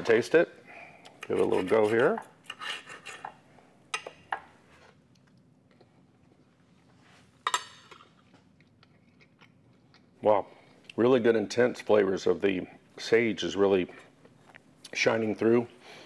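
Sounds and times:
knife and fork on a plate: 1.2 - 3.4.

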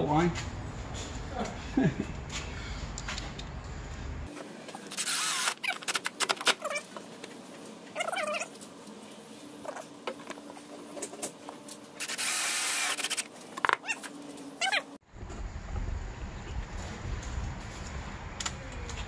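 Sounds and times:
cordless drill running: 5.0 - 5.6, 12.0 - 13.2
high animal calls: 7.9 - 8.5.

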